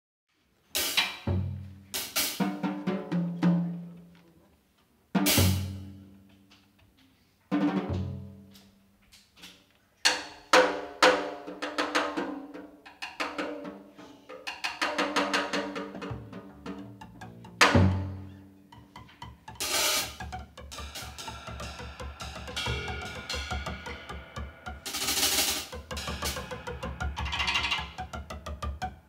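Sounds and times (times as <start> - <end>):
jazz combo playing: 5.2 - 6.0, 15.4 - 29.0
cymbal crashes: 19.5 - 28.3.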